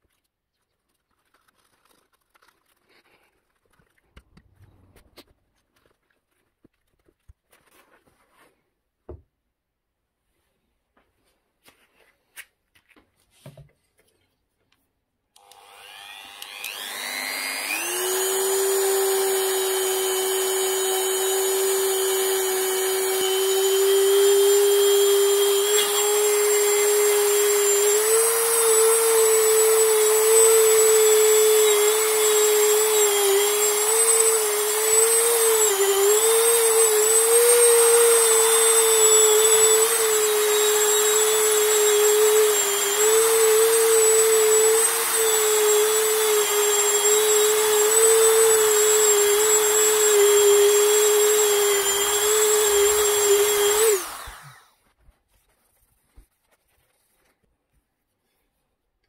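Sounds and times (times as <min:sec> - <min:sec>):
rotary tool whining: 0:15.4 - 0:54.8.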